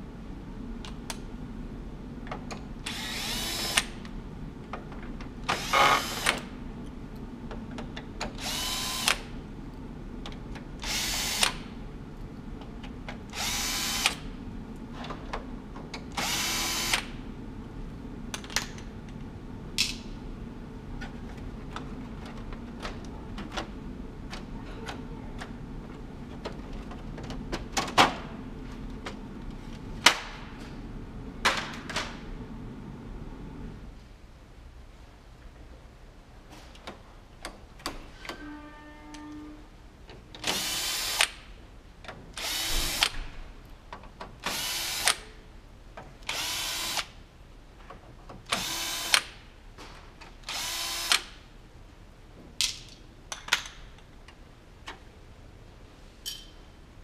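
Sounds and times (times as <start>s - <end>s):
power screwdriver whirring: 2.9s - 4.0s, 5.5s - 6.4s, 8.4s - 9.2s, 50.5s - 51.3s.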